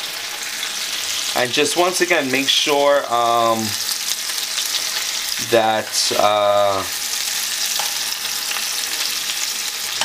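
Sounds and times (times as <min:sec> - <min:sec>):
meatballs sizzling in oil: 0:00.0 - 0:10.0
spoon scraping a pan: 0:07.6 - 0:10.0.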